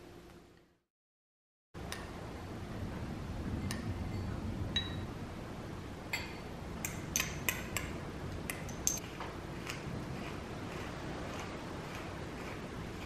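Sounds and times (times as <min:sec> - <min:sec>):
steady low hum: 0:01.8 - 0:13.0
spoon and dishes clinking on glass: 0:08.7 - 0:09.0.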